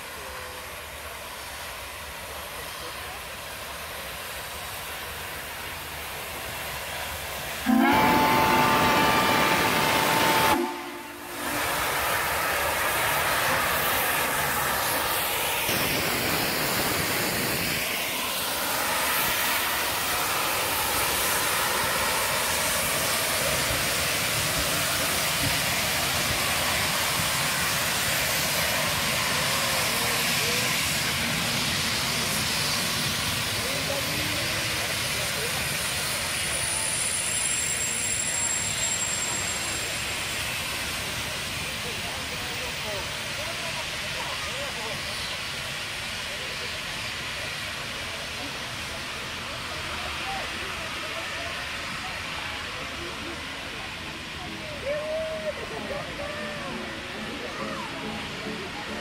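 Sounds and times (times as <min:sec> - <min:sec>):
steam hissing: 0:00.0 - 0:59.0
steam locomotive whistle: 0:07.6 - 0:12.5, 0:36.4 - 0:40.1.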